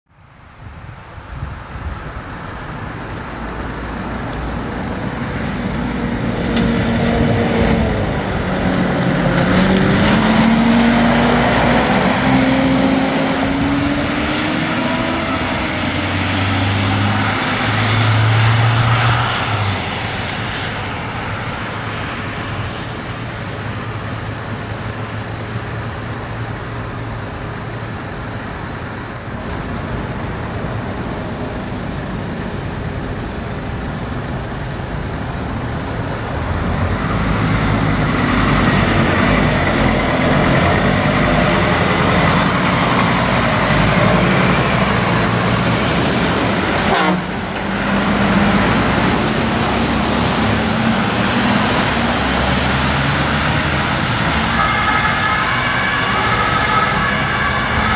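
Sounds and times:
traffic noise: 0:00.1 - 0:57.9
emergency vehicles driving past: 0:00.7 - 0:57.9
low horn blasts: 0:46.8 - 0:47.6, 0:54.2 - 0:57.9.

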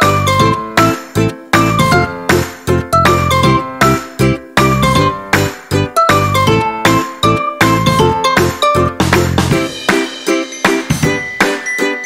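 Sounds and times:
tinkling melody over bass line: 0:00.0 - 0:12.0.

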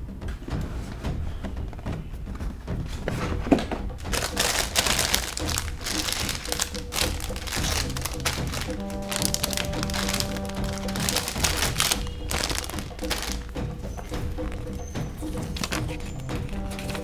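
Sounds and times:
background music: 0:00.0 - 0:17.0
plastic bags crinkling: 0:04.0 - 0:17.0.

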